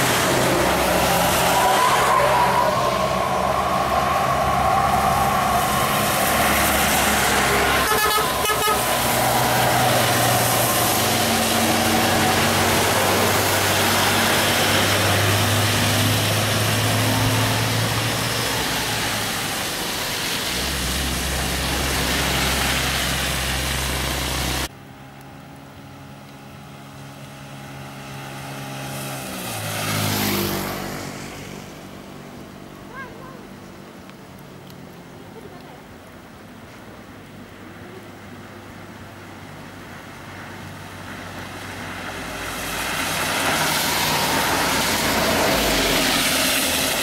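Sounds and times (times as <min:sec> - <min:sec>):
tyres hissing on wet road: 0:00.0 - 0:24.8, 0:25.6 - 0:47.0
diesel coach engine passing: 0:00.0 - 0:33.9, 0:37.9 - 0:47.0
distant traffic: 0:00.0 - 0:47.0.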